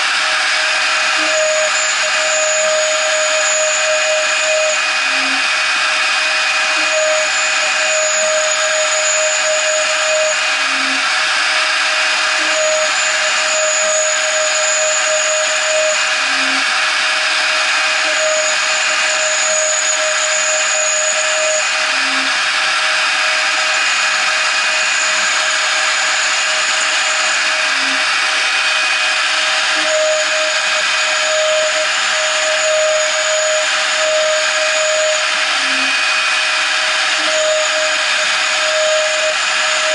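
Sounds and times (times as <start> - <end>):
end mill cutting metal: 0.0 - 39.9
router spindle whine: 0.0 - 39.9.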